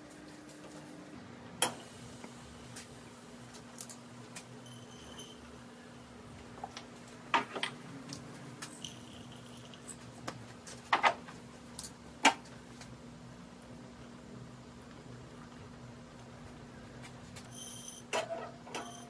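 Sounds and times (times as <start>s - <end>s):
faint steady hum: 0.0s - 19.0s
glass jar clinking: 8.8s - 9.9s.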